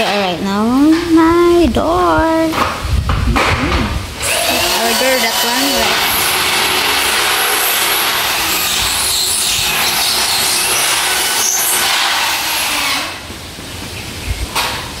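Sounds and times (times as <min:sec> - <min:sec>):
power drill drilling: 0:04.2 - 0:13.3.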